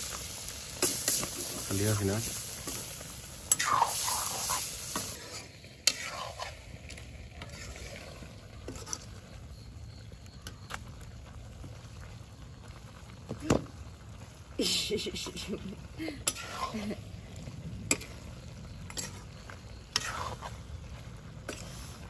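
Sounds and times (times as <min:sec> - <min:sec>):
meat sizzling: 0:00.0 - 0:22.0
metal ladle scraping a pan: 0:02.6 - 0:09.3, 0:16.2 - 0:17.0, 0:17.9 - 0:18.3, 0:18.9 - 0:22.0.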